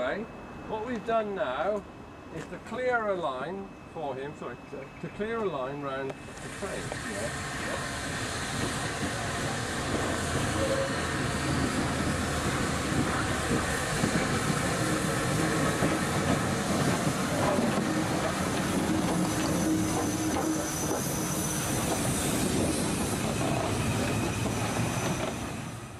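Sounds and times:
steam hiss: 6.2 - 25.9
high wheel squeal: 6.6 - 12.7, 13.7 - 25.9
wheels clattering on rails: 8.5 - 25.6.

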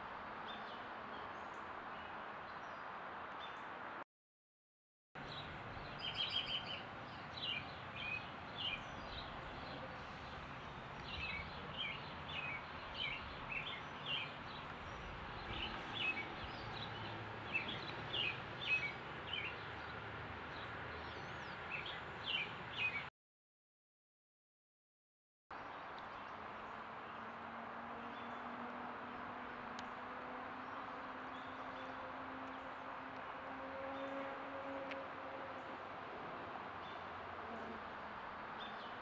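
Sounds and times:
outdoor background hiss: 5.2 - 23.1, 25.6 - 39.0.

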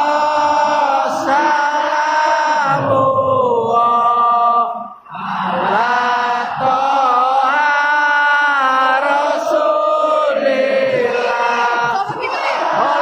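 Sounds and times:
stadium crowd singing a chant: 0.0 - 13.0.

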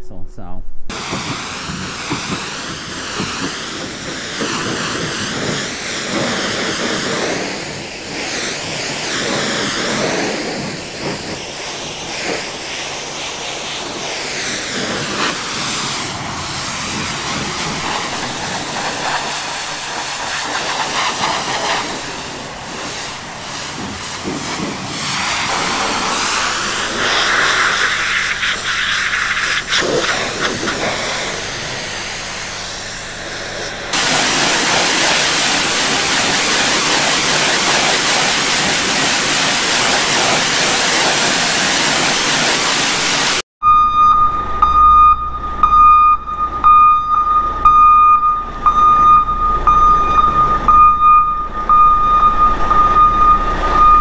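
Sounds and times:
pressure washer spraying metal: 0.9 - 43.4.

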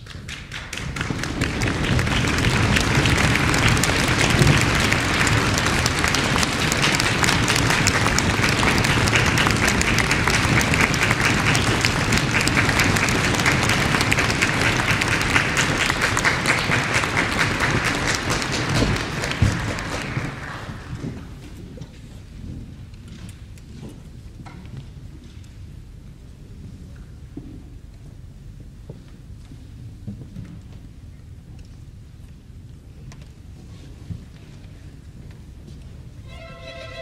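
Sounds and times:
audience applause: 0.0 - 21.4.

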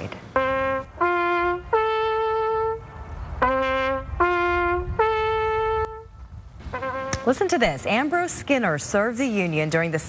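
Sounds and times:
brass bugle call: 0.3 - 7.5.

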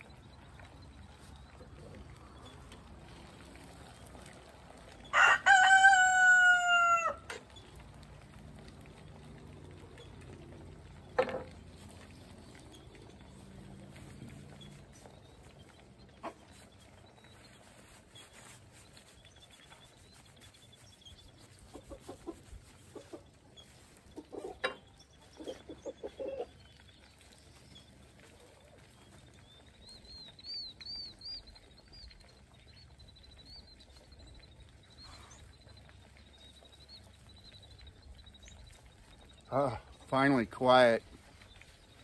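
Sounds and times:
faint road traffic rumble: 0.0 - 42.0
chickens clucking: 13.2 - 16.9, 21.2 - 27.1.

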